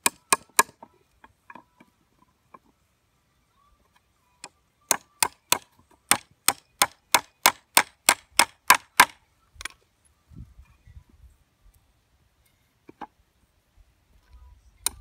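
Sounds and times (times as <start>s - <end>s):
hammer striking into wood: 0.0s - 0.8s, 4.9s - 9.2s.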